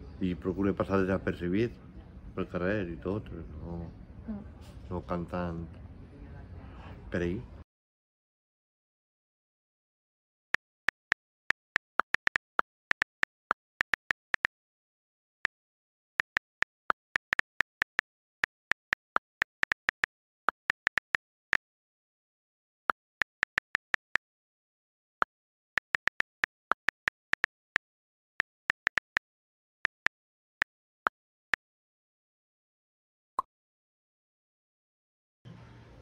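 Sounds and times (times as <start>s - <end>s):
phone keyboard key clicks: 10.8s - 14.5s, 16.2s - 21.2s, 23.2s - 24.2s, 25.8s - 27.8s, 28.4s - 29.2s.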